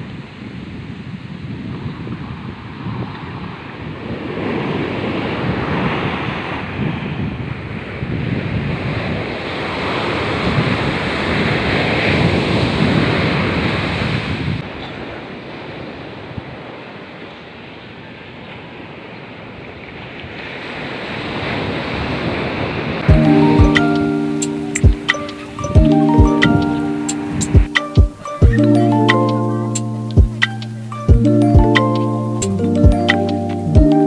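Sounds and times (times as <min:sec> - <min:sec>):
surf breaking on beach: 0:00.0 - 0:34.0
wind buffeting microphone: 0:00.0 - 0:34.0.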